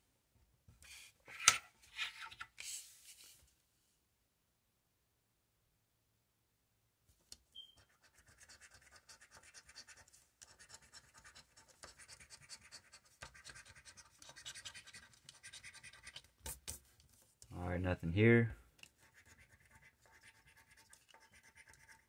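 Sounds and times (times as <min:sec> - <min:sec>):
coin scraping scratch card: 0:07.6 - 0:16.8, 0:19.0 - 0:22.0.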